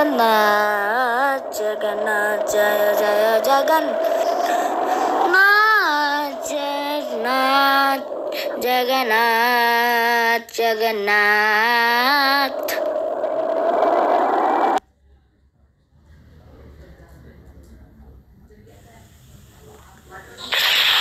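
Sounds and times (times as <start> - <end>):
high voice singing: 0.0 - 13.4.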